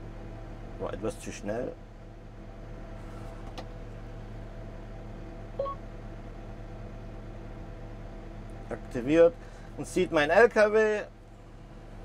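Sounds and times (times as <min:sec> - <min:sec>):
diesel engine idling: 0:01.8 - 0:12.0
short display beep: 0:05.6 - 0:05.8.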